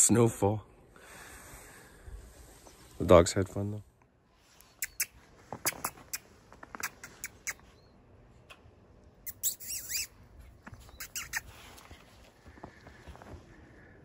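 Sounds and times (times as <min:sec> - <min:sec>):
footsteps crunching in snow: 0:10.4 - 0:13.7.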